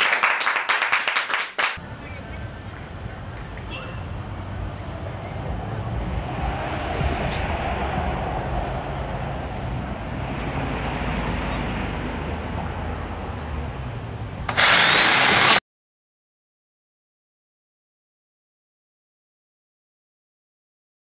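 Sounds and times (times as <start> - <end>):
loud hard hiss: 14.5 - 15.6.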